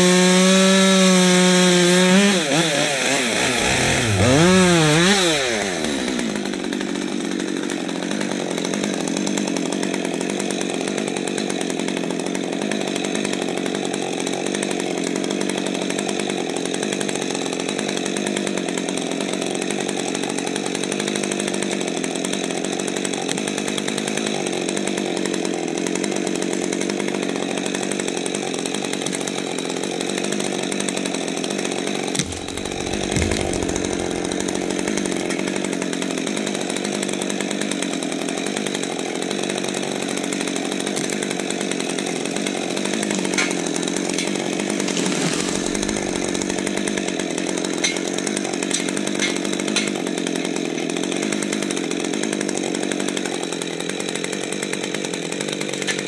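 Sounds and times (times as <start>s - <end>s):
chainsaw idling: 0.0s - 56.0s
dull thump: 32.2s - 35.4s.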